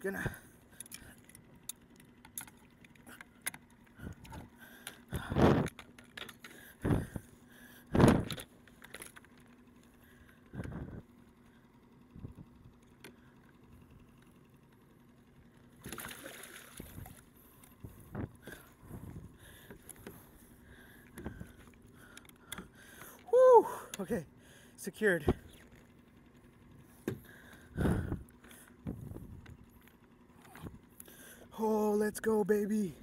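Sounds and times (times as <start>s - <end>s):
tackle clicks and rattles: 0.7s - 7.0s, 8.0s - 9.9s.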